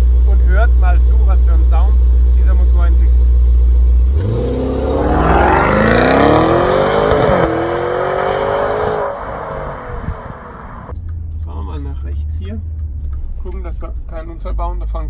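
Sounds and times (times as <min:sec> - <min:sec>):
car engine accelerating hard: 0:04.0 - 0:10.9.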